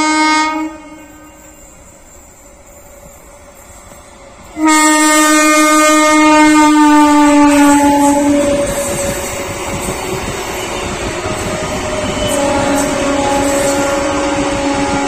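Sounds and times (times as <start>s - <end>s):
train horn blast: 0.0s - 1.7s, 4.5s - 9.3s, 10.6s - 15.0s.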